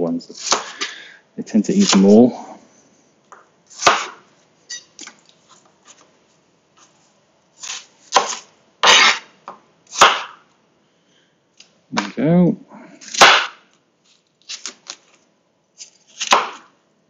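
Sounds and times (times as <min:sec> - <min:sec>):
knife chopping on chopping board: 0:00.4 - 0:00.8, 0:03.7 - 0:04.2, 0:07.6 - 0:09.3, 0:09.9 - 0:10.4, 0:13.1 - 0:13.6, 0:16.2 - 0:16.7.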